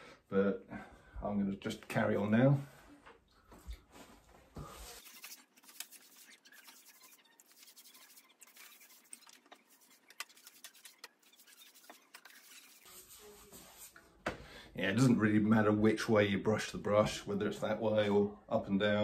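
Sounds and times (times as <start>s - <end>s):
paintbrush swishing on wallpaper: 3.9s - 14.0s.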